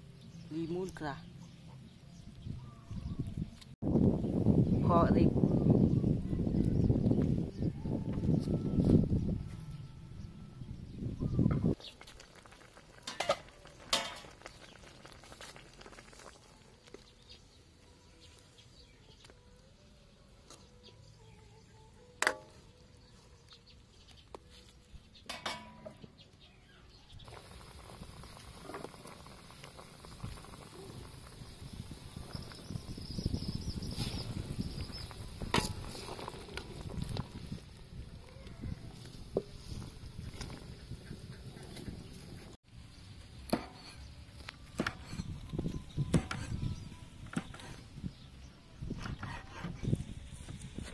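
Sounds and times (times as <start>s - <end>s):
broth boiling: 11.4s - 17.6s, 27.2s - 42.6s
lid clattering on wok: 25.3s - 26.0s
utensils clinking against wok: 25.3s - 26.0s.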